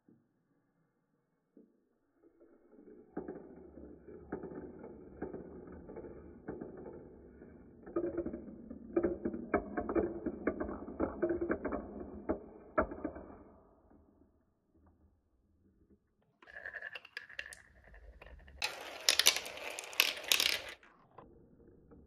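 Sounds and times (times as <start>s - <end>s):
marbles rolling on plastic track: 3.0s - 13.4s, 16.4s - 20.9s.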